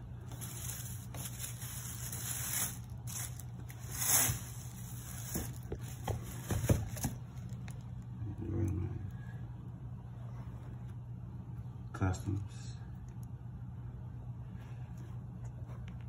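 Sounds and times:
tissue paper rustling and crinkling: 0.2s - 7.6s.

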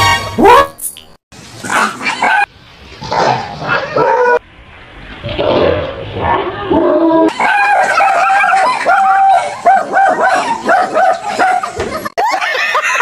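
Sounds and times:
dog barking and yelping: 1.8s - 2.5s, 3.1s - 4.4s, 7.3s - 11.8s.

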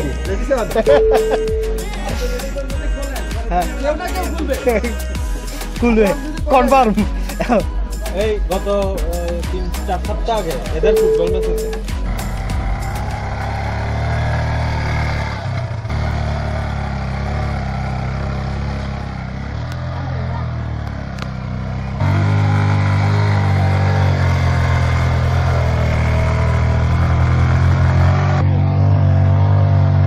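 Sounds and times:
motorcycle engines at low speed: 11.0s - 30.0s.

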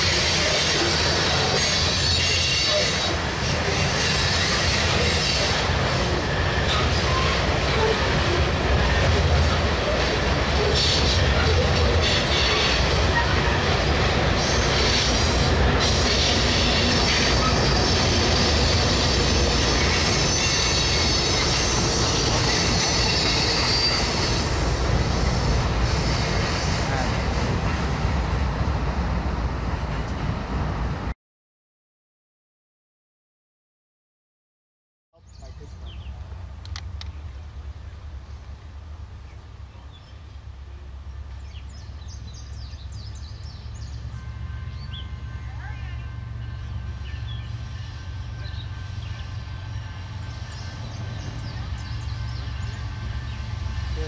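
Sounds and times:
wheels squealing on rail: 0.0s - 28.0s, 37.3s - 54.0s
clickety-clack over rail joints: 0.0s - 28.3s, 29.8s - 30.7s
freight train rumbling past: 0.0s - 31.2s, 35.5s - 54.0s.

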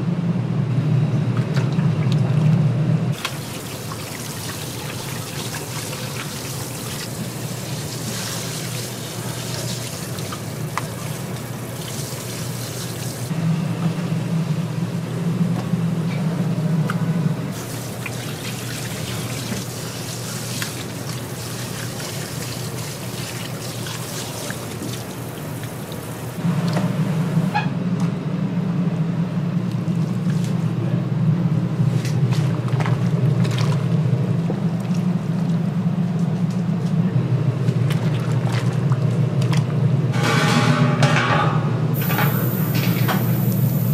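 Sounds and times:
steady low hum: 0.0s - 43.9s
liquid pouring and trickling: 3.2s - 13.3s.

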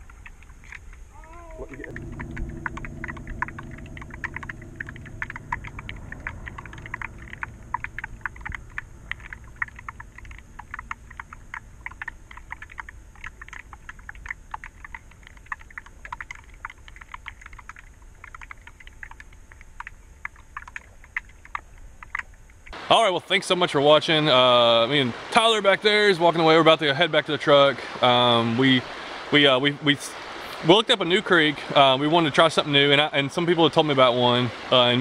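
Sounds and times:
underwater clicking and crackling: 0.0s - 22.8s
low murmur: 1.2s - 13.7s.

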